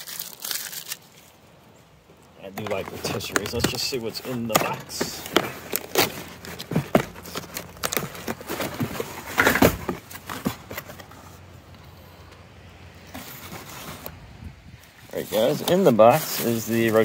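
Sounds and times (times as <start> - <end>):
packaging rustling: 0.0 - 1.4, 2.5 - 11.4.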